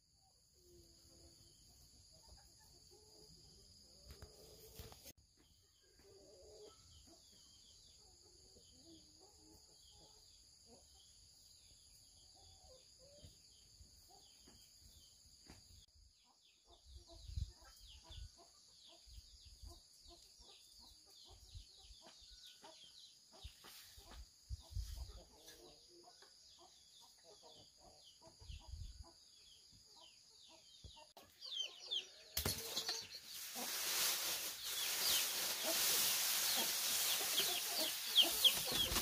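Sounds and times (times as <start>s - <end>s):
chickens clucking softly: 5.8s - 11.3s, 16.2s - 32.3s, 34.6s - 39.0s.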